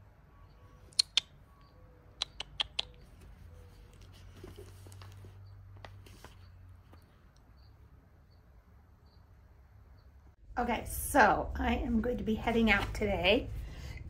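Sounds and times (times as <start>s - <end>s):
sharp clicks: 0.9s - 3.1s
faint rustling: 3.0s - 7.9s.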